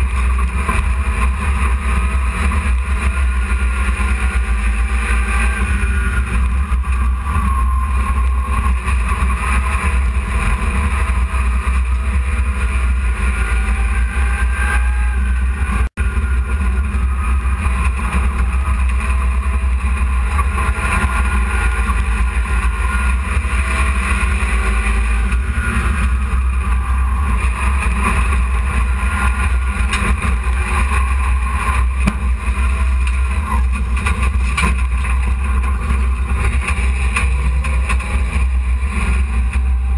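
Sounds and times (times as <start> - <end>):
constant rushing noise: 0.0 - 39.9
race truck engine running hard: 0.0 - 39.9.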